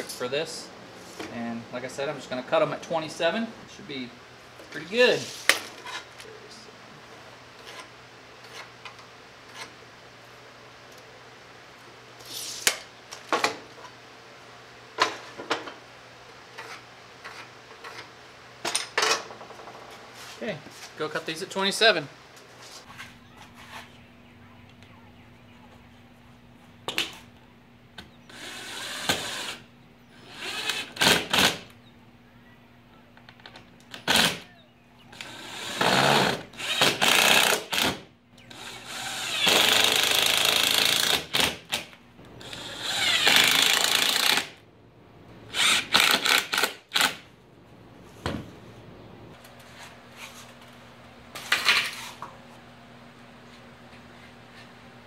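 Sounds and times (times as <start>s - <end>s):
cordless drill driving screws: 28.3s - 29.6s, 30.2s - 31.6s, 34.0s - 34.4s, 35.1s - 41.5s, 42.4s - 44.5s, 45.5s - 47.2s.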